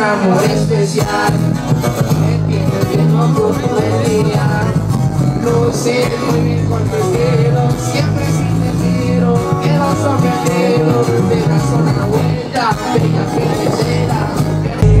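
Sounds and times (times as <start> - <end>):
man singing: 0.0 - 15.0
strummed guitars: 0.0 - 15.0
heavy bass line: 1.3 - 9.0, 14.7 - 15.0.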